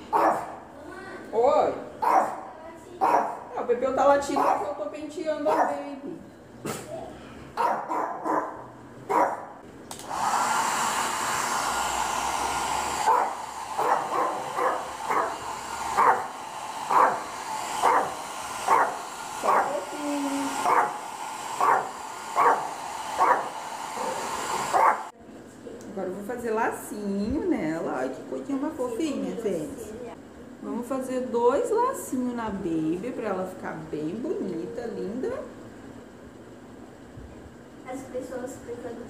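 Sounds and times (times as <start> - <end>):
dog barking: 0.0 - 0.6, 2.0 - 3.5, 4.3 - 4.7, 5.4 - 5.8, 7.6 - 9.6, 13.1 - 15.4, 16.0 - 16.3, 16.9 - 17.2, 17.8 - 19.8, 20.6 - 21.0, 21.6 - 25.1
hair dryer running: 9.9 - 25.2, 25.8 - 29.7, 30.6 - 35.5.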